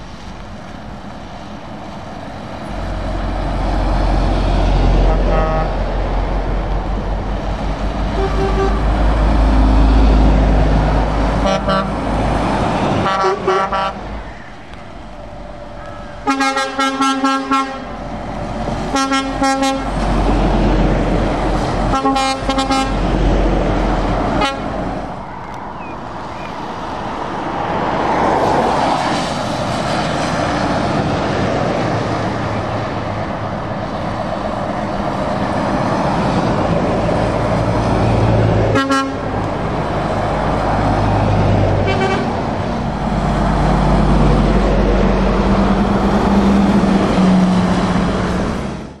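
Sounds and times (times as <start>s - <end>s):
truck engine drone: 0.0s - 49.0s
trucks driving past: 0.0s - 49.0s
tyre noise on wet road: 0.0s - 49.0s
truck horn toot: 5.0s - 5.8s, 8.1s - 9.0s, 11.4s - 12.0s, 13.0s - 14.0s, 15.8s - 18.0s, 18.9s - 20.0s, 21.9s - 23.0s, 24.4s - 24.8s, 38.7s - 39.3s, 41.8s - 42.4s.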